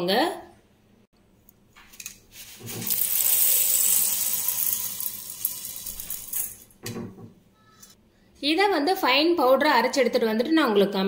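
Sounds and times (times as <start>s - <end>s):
dry lentils rattling into metal jar: 2.6s - 6.7s.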